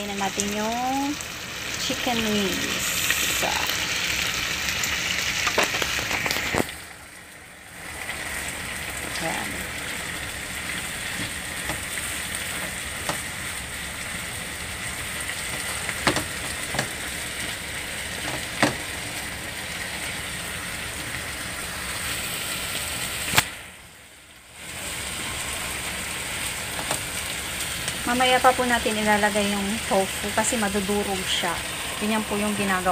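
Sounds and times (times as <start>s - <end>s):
food sizzling in a frying pan: 0.0s - 32.9s.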